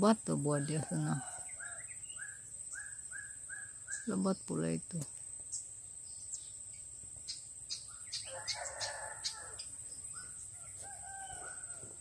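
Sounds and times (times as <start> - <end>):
high insect tone: 0.0 - 12.0
rooster crowing: 0.6 - 2.0, 8.2 - 9.9, 10.5 - 12.0
bird chirps: 1.0 - 11.7.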